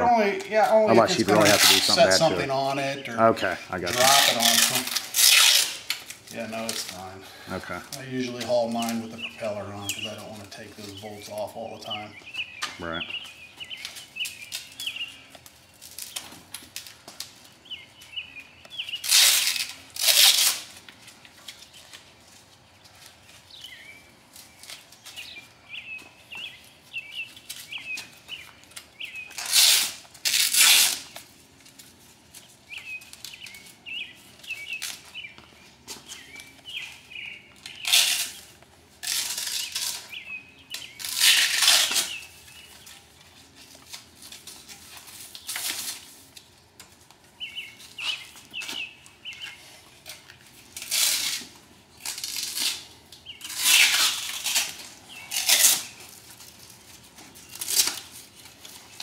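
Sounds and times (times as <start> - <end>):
velcro straps ripping: 0.7 - 2.4, 3.8 - 7.1, 18.9 - 22.0, 27.4 - 32.4, 37.6 - 42.9, 47.8 - 59.0.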